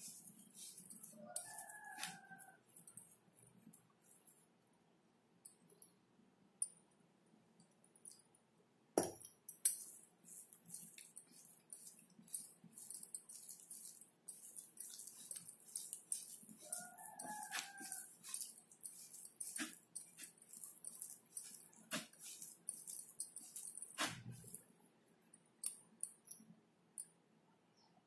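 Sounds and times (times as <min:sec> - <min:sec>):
fingers squelching wet paste: 0:00.0 - 0:03.0, 0:09.8 - 0:24.6.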